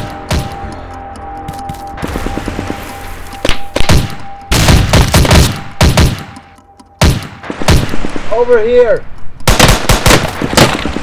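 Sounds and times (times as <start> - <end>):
automatic rifle fire: 9.5 - 11.0.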